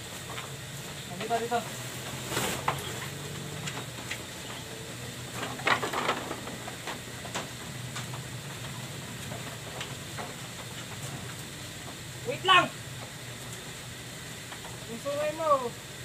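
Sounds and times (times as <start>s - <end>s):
sack rustling: 2.1s - 2.8s.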